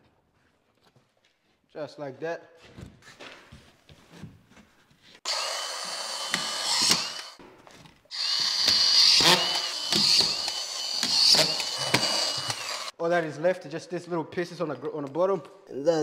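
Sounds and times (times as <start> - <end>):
screw gun driving screws: 5.3 - 7.4, 8.1 - 12.9.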